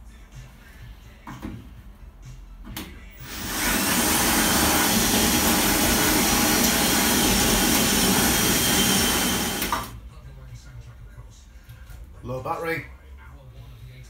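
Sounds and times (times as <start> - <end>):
cordless drill boring into sheet metal: 3.2 - 9.9.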